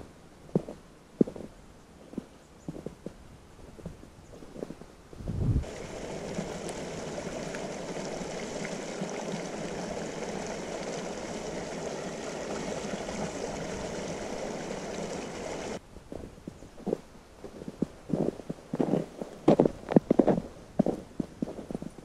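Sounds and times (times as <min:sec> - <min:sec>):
stream water flowing: 0:05.6 - 0:15.8.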